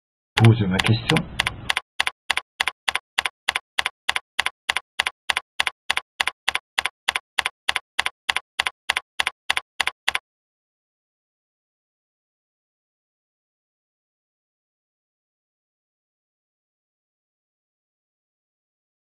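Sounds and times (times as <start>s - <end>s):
keyboard typing clicks: 0.4s - 10.2s.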